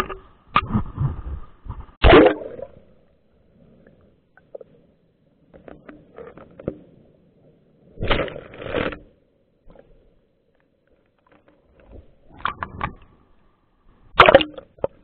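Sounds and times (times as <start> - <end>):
underwater clicks and knocks: 0.0 - 2.2, 5.5 - 7.0, 10.6 - 13.3, 14.1 - 15.0.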